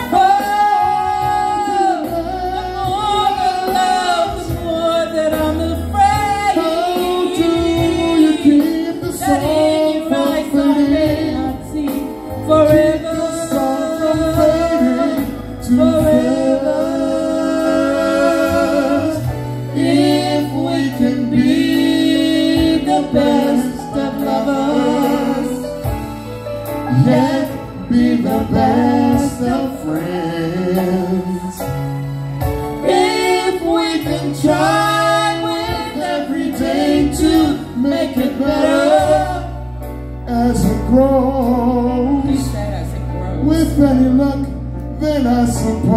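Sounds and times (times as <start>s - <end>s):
man singing: 0.0s - 26.1s, 26.8s - 31.8s, 32.7s - 45.9s
amplified instrumental music: 0.0s - 45.9s
woman singing: 7.2s - 12.0s.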